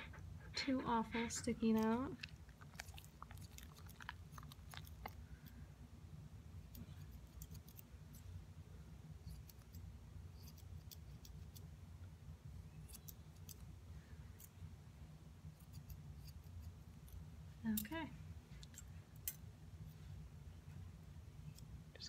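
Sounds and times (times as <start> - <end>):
steady low hum: 0.0 - 22.0
scissors snipping hair: 1.6 - 2.1, 6.7 - 8.3, 9.2 - 11.6, 12.8 - 13.7, 15.5 - 18.0.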